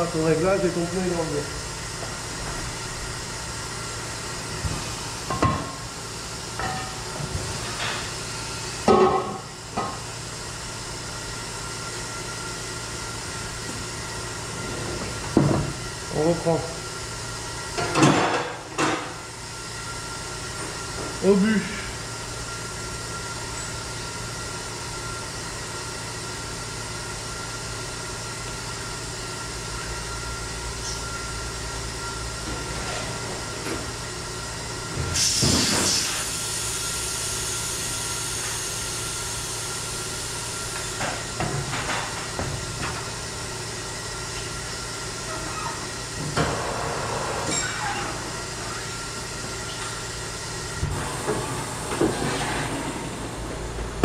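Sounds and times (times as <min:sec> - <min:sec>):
workshop machine hum: 0:00.0 - 0:54.0
compressed air hissing: 0:35.2 - 0:39.8.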